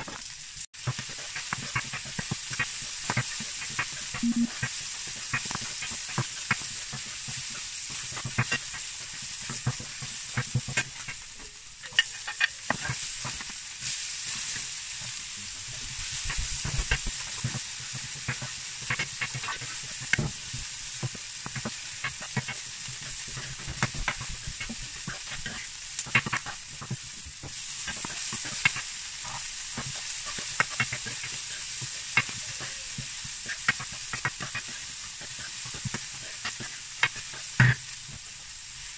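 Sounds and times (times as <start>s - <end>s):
food sizzling in frying pan: 0.0s - 38.9s
plastic spatula scraping pan: 21.0s - 37.9s.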